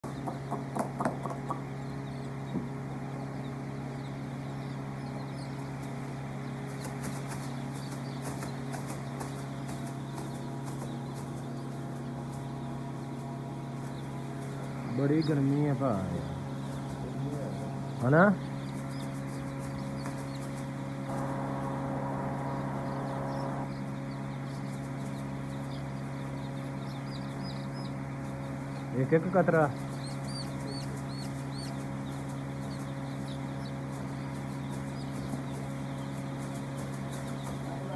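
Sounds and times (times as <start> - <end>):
chicks peeping: 0.0 - 37.9
steady low hum: 0.0 - 37.9
soft rushing noise: 21.1 - 24.3.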